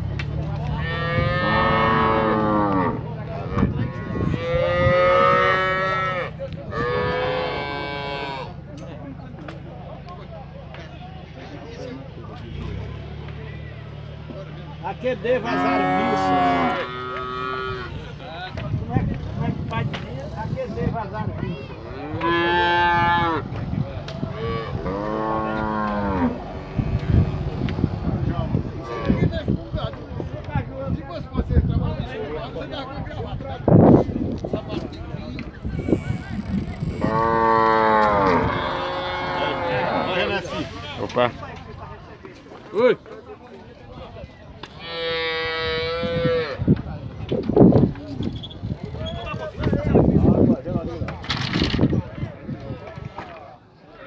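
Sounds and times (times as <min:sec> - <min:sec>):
cattle mooing: 0:00.8 - 0:08.6, 0:15.4 - 0:18.0, 0:21.7 - 0:23.4, 0:24.3 - 0:27.7, 0:35.6 - 0:40.7, 0:44.8 - 0:46.6.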